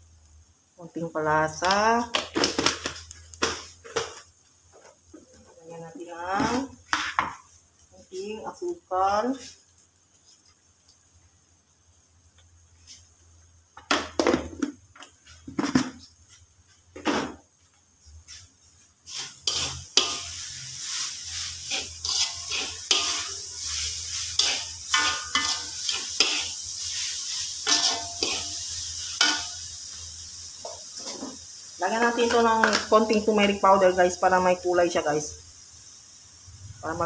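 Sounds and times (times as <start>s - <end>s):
high sizzle: 0.0s - 37.0s
metal spatula scraping wok: 19.0s - 30.0s, 30.6s - 33.3s.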